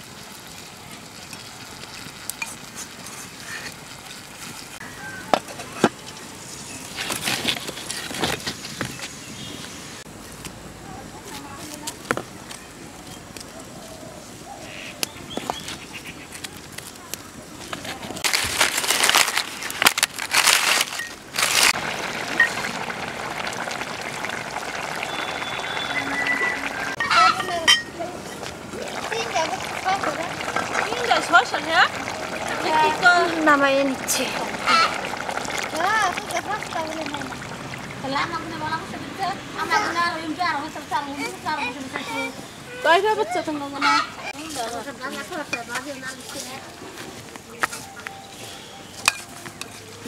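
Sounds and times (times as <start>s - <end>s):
curry simmering with low hiss: 0.0s - 50.0s
curry bubbling in a pot: 21.4s - 38.7s.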